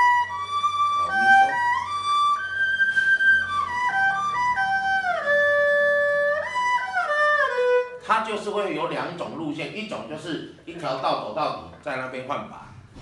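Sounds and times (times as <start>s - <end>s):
erhu bowed notes: 0.0s - 8.6s.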